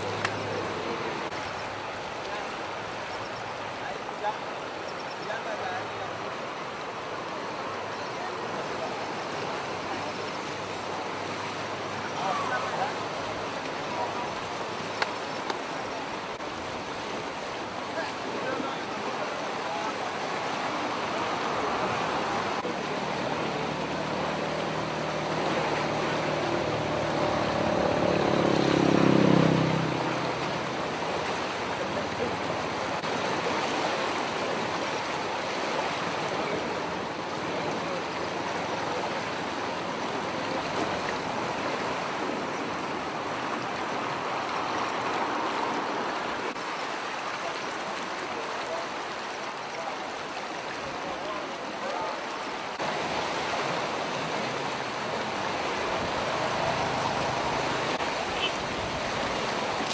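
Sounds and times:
floodwater rushing: 0:00.0 - 0:59.9
vehicle passing on bridge: 0:23.4 - 0:31.1, 0:55.5 - 0:59.7.

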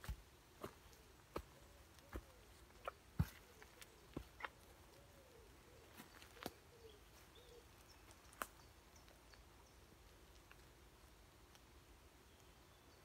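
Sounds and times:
pigeon cooing: 0:01.6 - 0:07.7.

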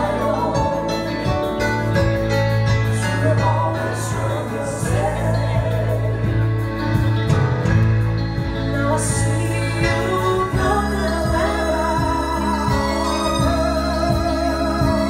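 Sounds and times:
live pop band playing: 0:00.0 - 0:15.0
vocal harmonies: 0:00.0 - 0:15.0.

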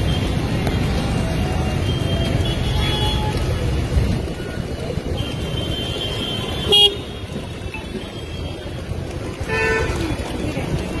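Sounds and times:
city traffic rumble: 0:00.0 - 0:11.0.

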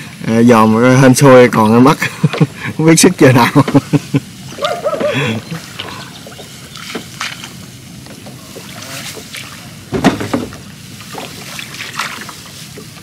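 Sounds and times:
water lapping: 0:00.0 - 0:13.0
knocks against boat: 0:09.9 - 0:10.6.

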